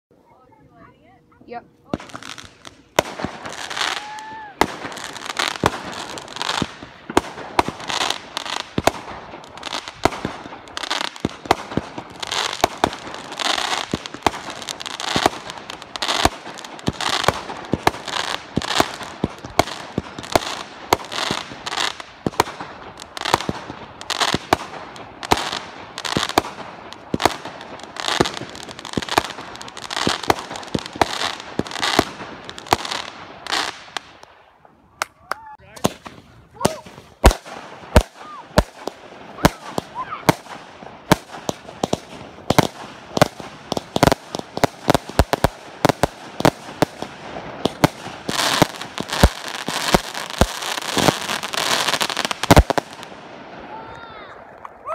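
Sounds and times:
crackling hiss: 0.2 - 35.2, 35.8 - 54.9
firework pops and bangs: 1.9 - 34.3, 35.0 - 53.2
rising firework whistle: 3.4 - 5.2.

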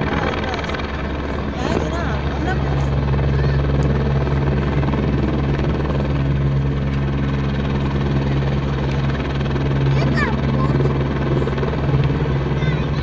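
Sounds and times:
helicopter engine and rotor drone: 0.0 - 13.0.

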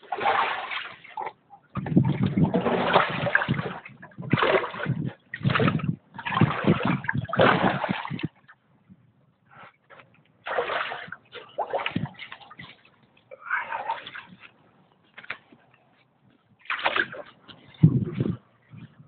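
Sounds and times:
water splashed by hand: 0.0 - 8.5, 10.4 - 14.5, 16.6 - 18.4.

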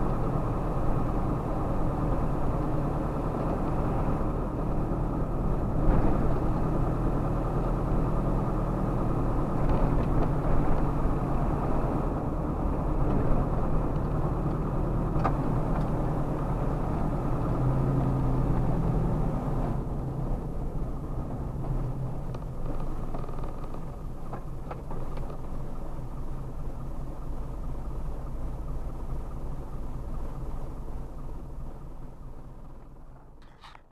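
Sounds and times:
road rumble: 0.0 - 33.9
vehicle engine hum: 0.0 - 33.9.

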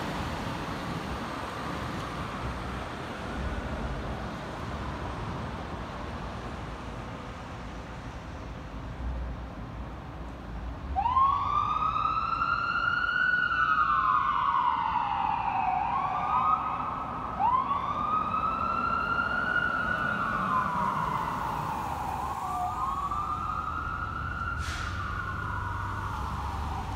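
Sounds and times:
fire truck sirens wailing: 10.9 - 26.9
short hiss: 24.6 - 25.0.

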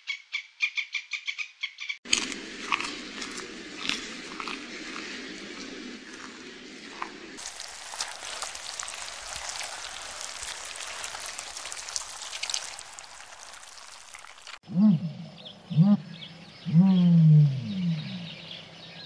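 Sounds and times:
panda chewing bamboo: 2.1 - 14.6
foam bubbles popping on sand: 3.2 - 14.6.

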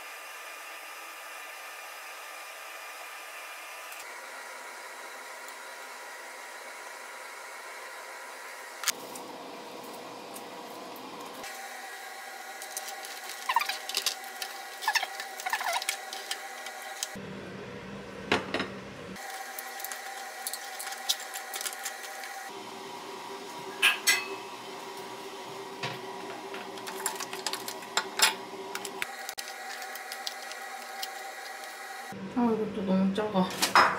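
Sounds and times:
crab shells cracking: 12.6 - 17.2, 19.2 - 22.4, 26.8 - 31.8.

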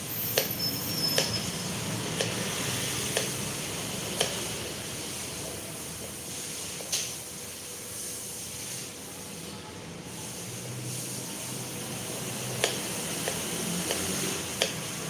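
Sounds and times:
steady hiss: 1.8 - 15.0.

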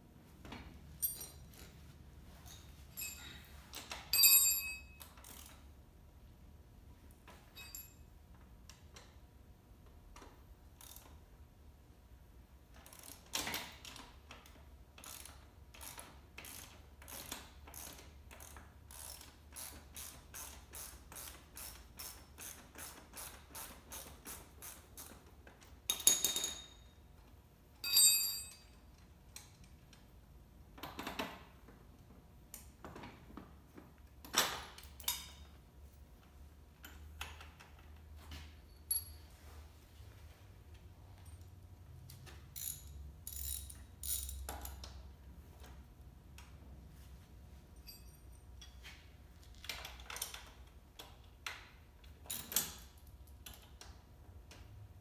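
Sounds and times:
metal tools clanking: 2.4 - 5.1
ratchet wrench clicking: 5.0 - 5.6, 10.8 - 11.2, 12.8 - 25.2, 42.5 - 45.0.

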